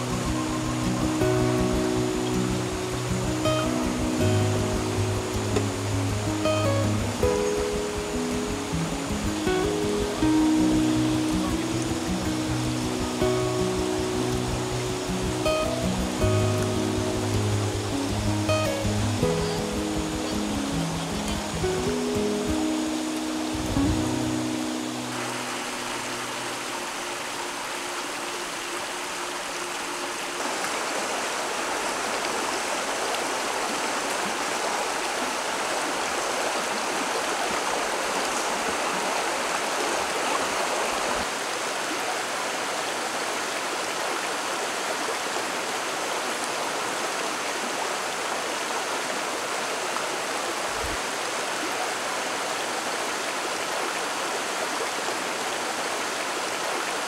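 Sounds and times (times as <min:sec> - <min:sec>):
background music: 0:00.0 - 0:30.2
stream rushing over rocks: 0:00.0 - 0:57.0.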